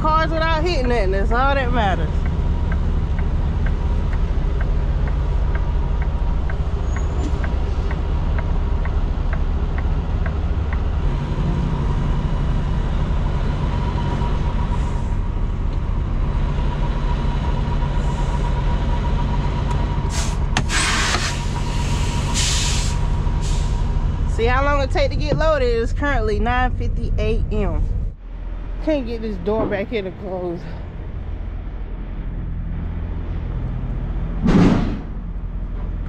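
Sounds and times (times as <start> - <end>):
diesel truck engine running: 0.0 - 36.0
light regular ticking: 2.0 - 11.0.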